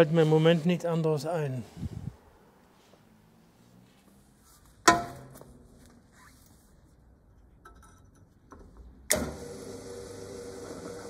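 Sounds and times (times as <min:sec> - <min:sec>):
clicks of metal being handled: 0:07.6 - 0:08.9
drill press motor hum: 0:09.1 - 0:11.0
drill press starting jolt: 0:09.1 - 0:11.0.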